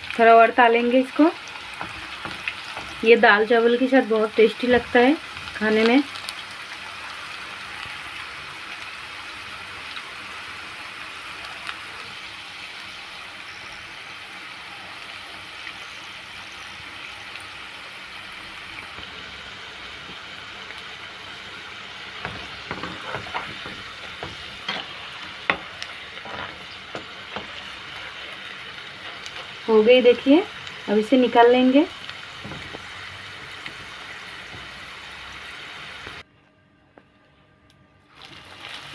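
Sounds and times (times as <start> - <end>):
food deep-frying in hot oil: 0.0 - 36.2, 38.1 - 38.9
spoon scraping against pan: 22.2 - 29.7.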